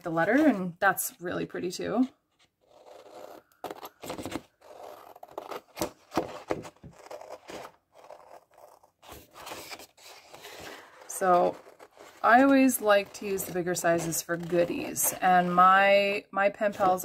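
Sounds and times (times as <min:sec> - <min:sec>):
scissors cutting paper: 0:02.6 - 0:15.3.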